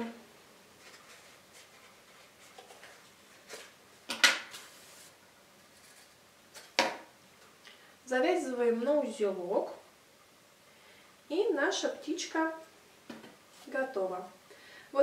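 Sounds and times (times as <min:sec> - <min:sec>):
paper rustling: 0:00.8 - 0:06.9.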